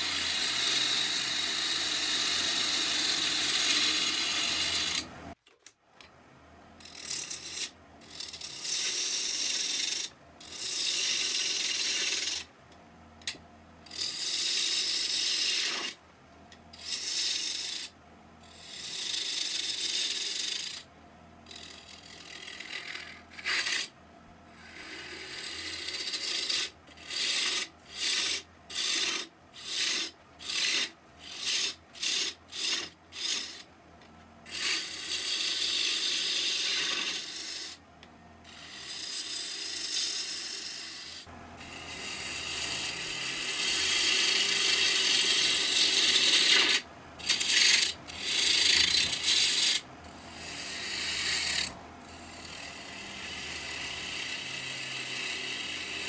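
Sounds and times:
gouge cutting wood on lathe: 0.0 - 5.1, 6.8 - 12.5, 13.9 - 16.0, 21.5 - 23.9, 24.6 - 33.6, 34.5 - 37.8, 38.5 - 56.0
lathe humming: 0.0 - 5.2, 40.9 - 56.0.

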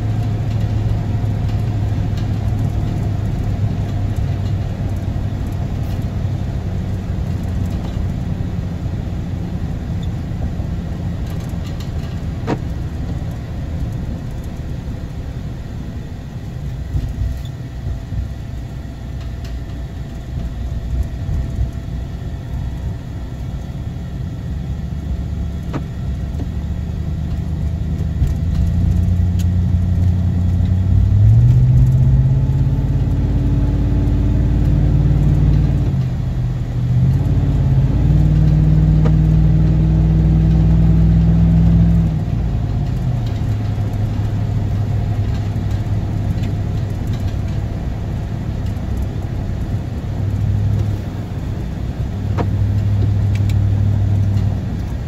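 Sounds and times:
tyres on wet road: 0.0 - 18.2, 24.2 - 55.0
vehicle engine accelerating: 20.3 - 55.0.

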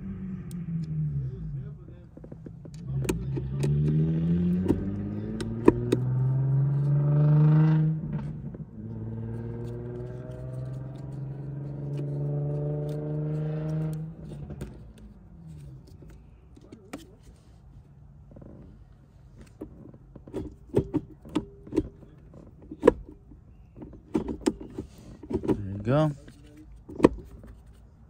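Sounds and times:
car engine accelerating: 0.0 - 16.4.

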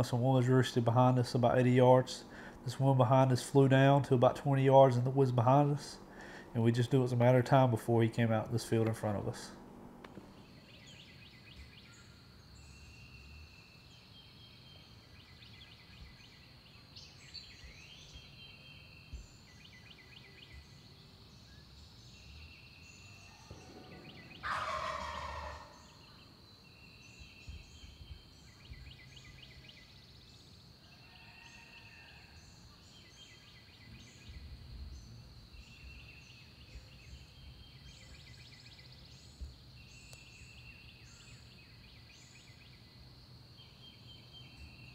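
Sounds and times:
turkey gobbling: 23.7 - 26.0.

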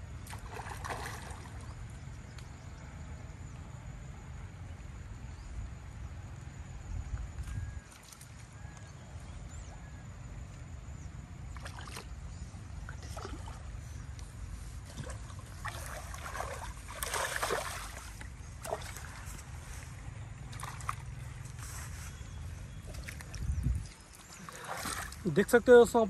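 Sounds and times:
water sloshing and splashing: 0.1 - 2.0, 7.4 - 8.6, 11.4 - 25.9.

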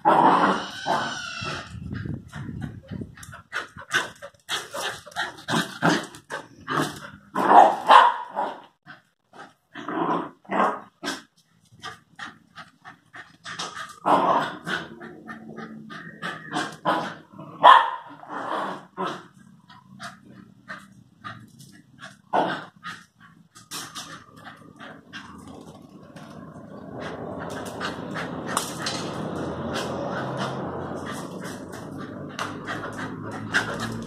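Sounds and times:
dogs growling: 0.0 - 7.8, 11.9 - 34.0
dogs barking: 7.4 - 8.6, 17.6 - 18.2.

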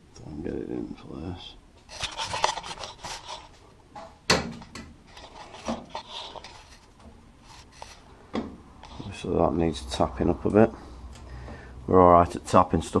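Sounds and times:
sheet metal rubbing and scraping: 1.9 - 3.6, 5.1 - 8.0.

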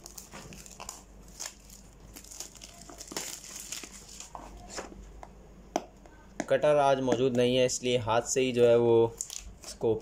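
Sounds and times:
plastic wrap crinkling: 0.0 - 4.8, 9.0 - 10.0.

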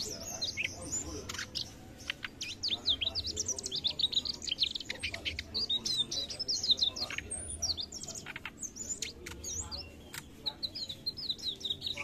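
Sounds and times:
bird twittering song: 0.0 - 12.0.

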